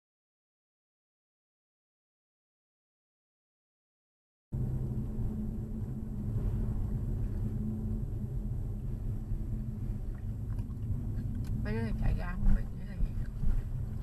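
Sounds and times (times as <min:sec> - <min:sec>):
car driving on road: 0:04.6 - 0:14.0.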